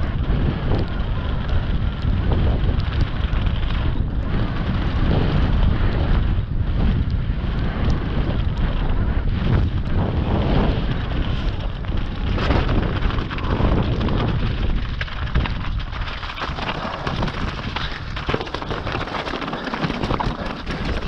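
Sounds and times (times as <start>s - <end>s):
bike rattling and knocking: 0.0s - 21.0s
wind buffeting microphone: 0.0s - 21.0s
tyres crunching over stones: 11.0s - 21.0s.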